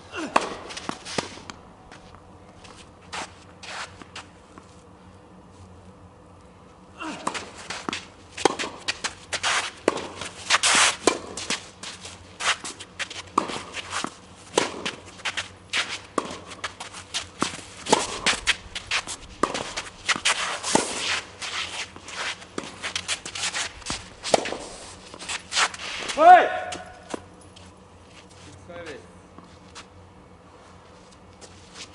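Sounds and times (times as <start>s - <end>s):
tennis ball hitting rackets: 0.2s - 2.2s, 7.1s - 27.3s
footsteps scuffing on court: 0.4s - 4.9s, 7.2s - 31.9s.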